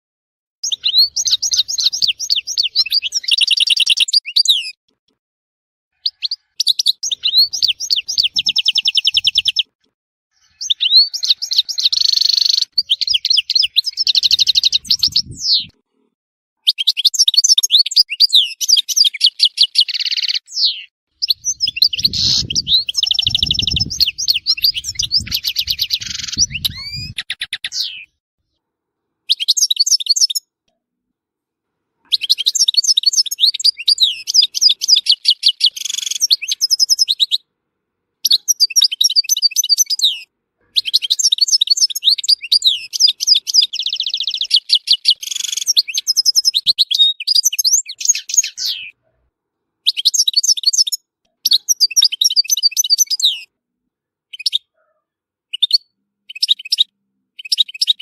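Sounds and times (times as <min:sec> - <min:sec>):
goldfinch singing: 0:00.6 - 0:04.8, 0:06.0 - 0:09.7, 0:10.4 - 0:15.7, 0:16.7 - 0:28.1, 0:32.1 - 0:37.4, 0:38.3 - 0:48.9.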